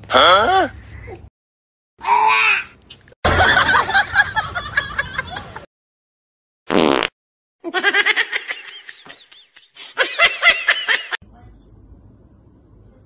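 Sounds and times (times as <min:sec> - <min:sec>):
person laughing and giggling: 0:07.7 - 0:11.2.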